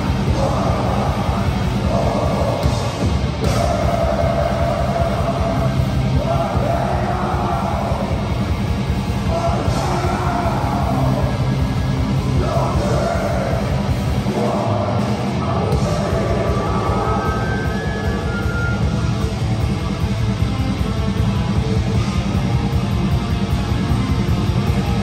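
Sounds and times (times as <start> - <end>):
harsh screamed vocals: 0.0 - 8.4, 9.2 - 19.0
distorted guitars: 0.0 - 25.0
fast dense drumming: 0.0 - 25.0.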